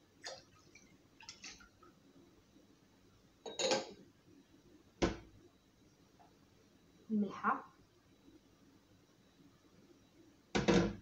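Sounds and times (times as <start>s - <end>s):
glassware clinking: 3.4s - 4.0s.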